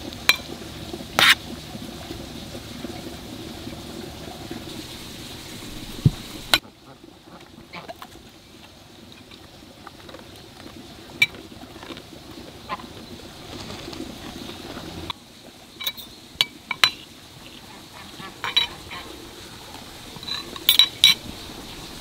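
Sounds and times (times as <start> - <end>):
cutlery clinking on plates: 15.8 - 16.1, 18.4 - 18.8.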